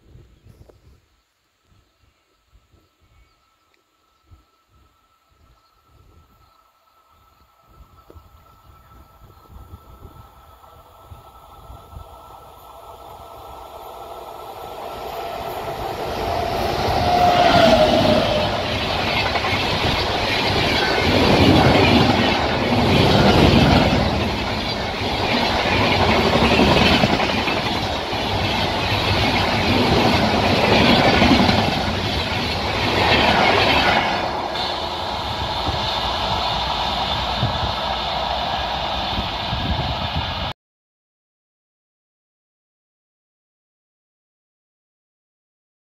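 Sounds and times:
train passing at speed: 4.0s - 40.6s.

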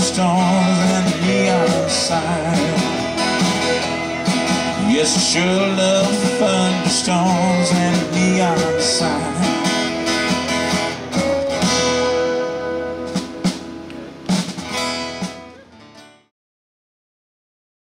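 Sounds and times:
fiddle holding notes: 0.0s - 13.8s
acoustic guitar: 0.0s - 16.3s
pedal steel guitar: 0.0s - 16.3s.

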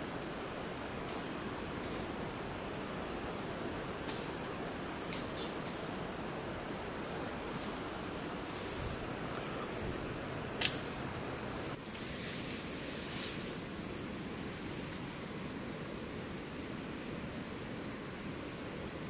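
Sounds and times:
crickets trilling: 0.0s - 19.0s
sharp click: 10.6s - 10.9s.

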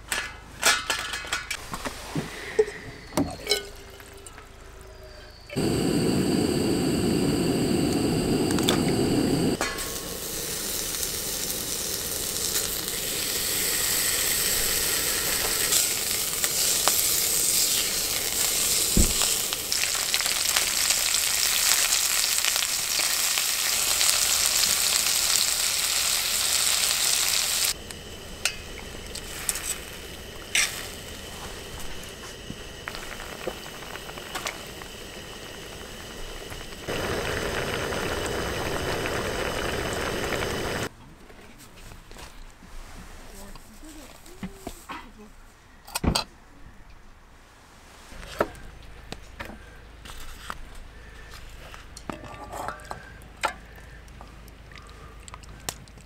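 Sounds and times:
meat sizzling in a pot: 5.5s - 40.9s.

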